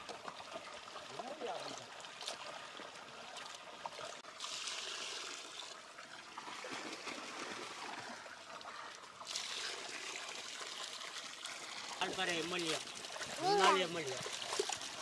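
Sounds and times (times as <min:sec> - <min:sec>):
water pouring into a pot: 0:04.2 - 0:07.9, 0:09.2 - 0:15.0.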